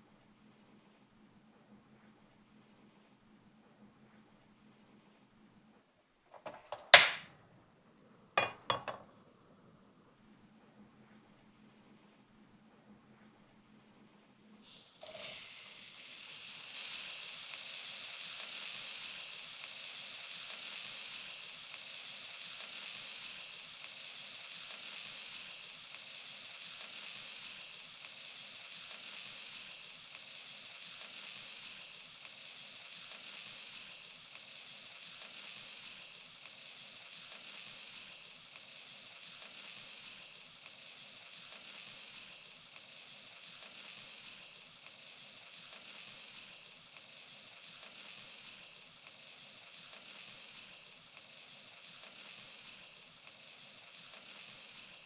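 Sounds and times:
meat sizzling in a frying pan: 0:06.3 - 0:07.3, 0:14.6 - 0:55.0.

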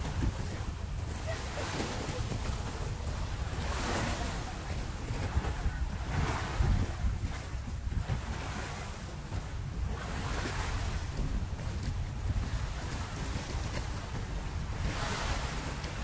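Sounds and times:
small waves washing on rocky shore: 0:00.0 - 0:16.0
wind buffeting microphone: 0:00.0 - 0:16.0.

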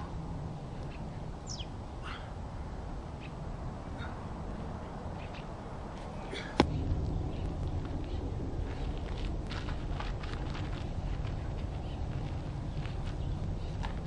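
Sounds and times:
low background noise: 0:00.0 - 0:14.0
birds chirping: 0:00.7 - 0:09.2, 0:11.4 - 0:14.0.

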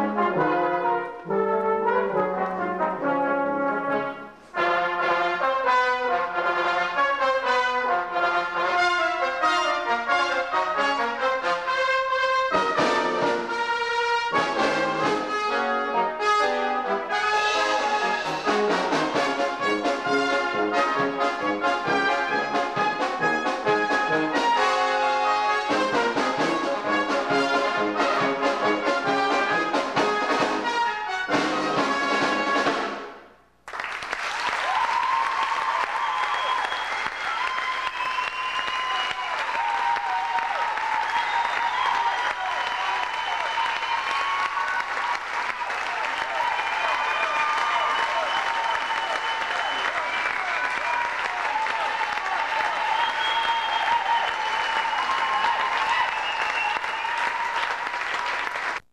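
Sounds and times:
brass ensemble with drums: 0:00.0 - 0:33.4
audience applause: 0:33.6 - 0:58.9.

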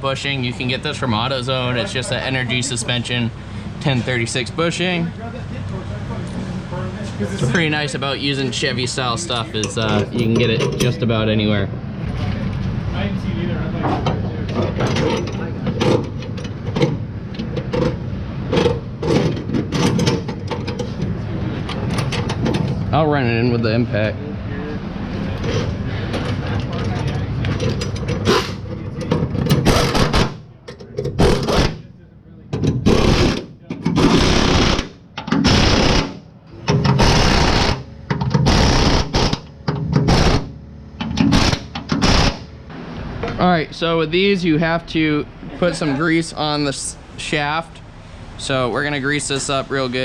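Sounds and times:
low background hum: 0:00.0 - 0:50.0
air impact wrench bursts: 0:32.8 - 0:36.2, 0:36.9 - 0:40.5, 0:41.2 - 0:42.5.

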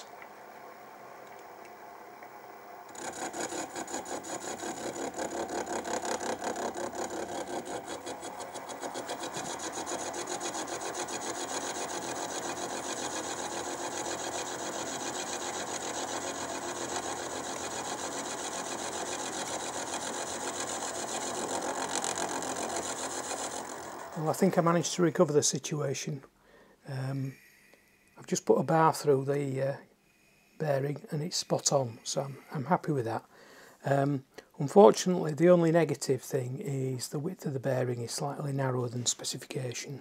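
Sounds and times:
milling machine cutting brass: 0:02.9 - 0:24.8.

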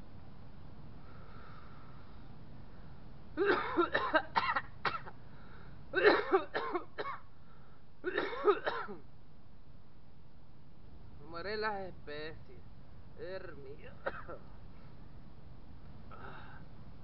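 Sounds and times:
man coughing: 0:03.4 - 0:05.2, 0:06.0 - 0:07.2, 0:08.1 - 0:09.0, 0:14.0 - 0:14.4.

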